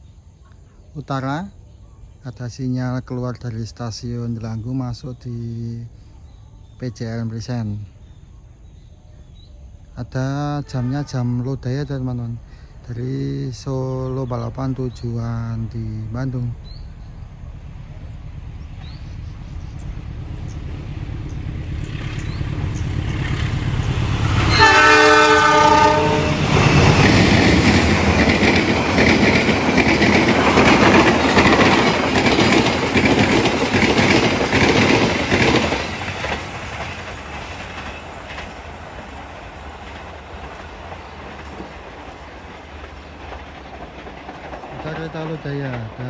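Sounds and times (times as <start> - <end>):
diesel locomotive rumble: 2.2 - 46.0
train horn blast: 10.4 - 11.5, 24.2 - 27.0
train wheels clickety-clack: 18.6 - 46.0.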